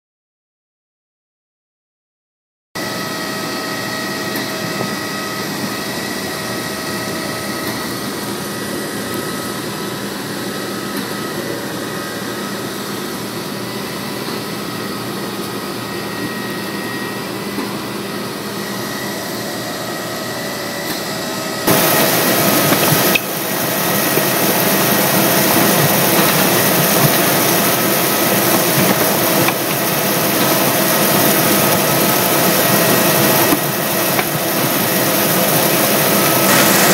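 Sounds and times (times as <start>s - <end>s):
mechanical whine: 2.8s - 36.9s
lorry engine running: 19.2s - 36.9s.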